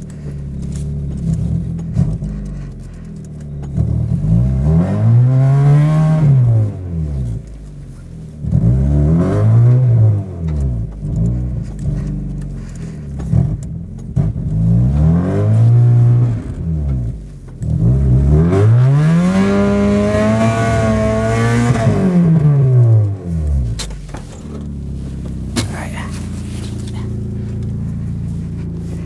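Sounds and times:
wheels spinning in snow: 0.0s - 4.6s
car engine revving: 0.0s - 29.0s.

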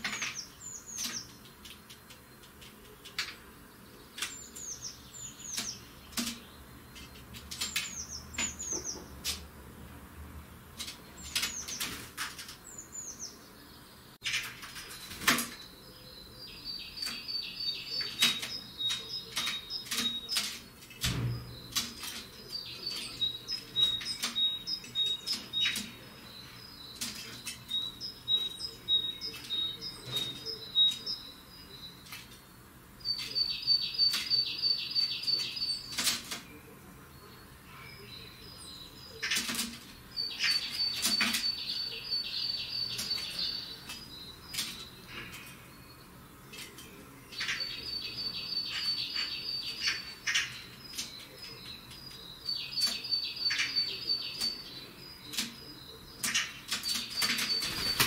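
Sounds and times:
bird twittering: 21.5s - 32.0s.

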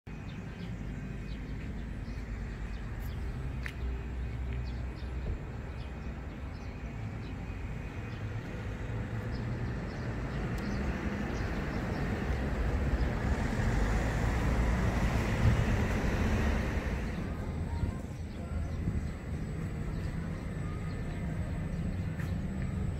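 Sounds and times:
steady low rumble: 0.1s - 22.9s.

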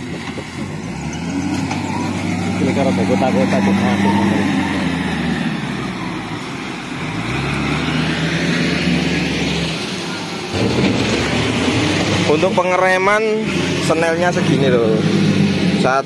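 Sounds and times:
heavy diesel engine running: 0.0s - 16.0s.

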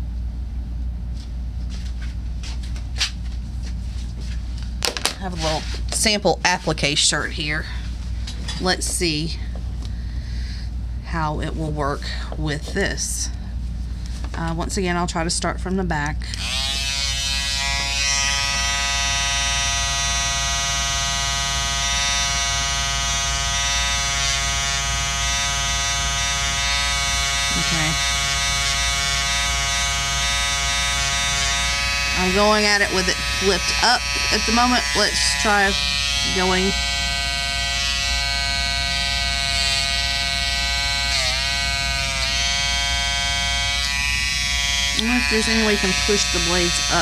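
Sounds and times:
electric shaver buzzing: 16.2s - 47.0s.

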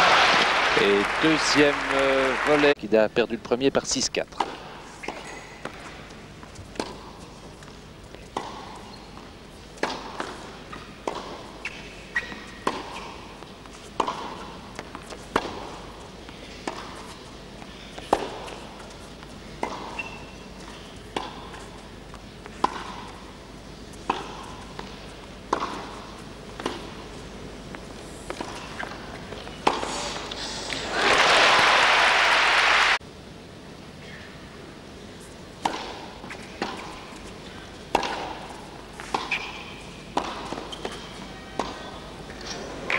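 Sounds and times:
tennis ball hit by racket: 8.3s - 8.7s, 9.8s - 13.3s, 13.9s - 15.8s, 16.6s - 17.0s, 18.0s - 18.7s, 19.6s - 20.2s, 21.1s - 21.6s, 22.5s - 23.2s, 24.0s - 27.0s, 35.6s - 37.0s, 37.9s - 41.0s, 41.6s - 41.8s.

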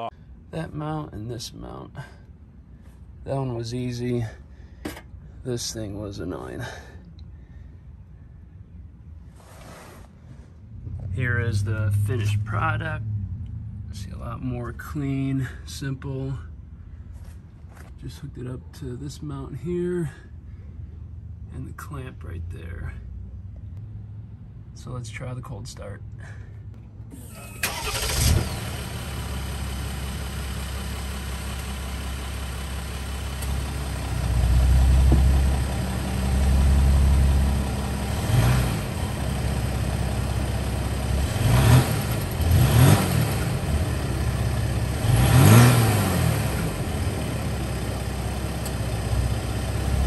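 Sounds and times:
diesel engine starting and revving: 10.8s - 14.4s, 27.1s - 50.0s.

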